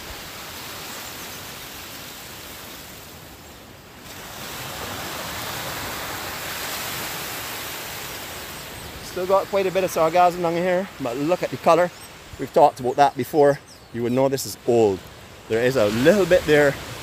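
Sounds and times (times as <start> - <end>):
small waves washing onto shore: 0.0 - 17.0.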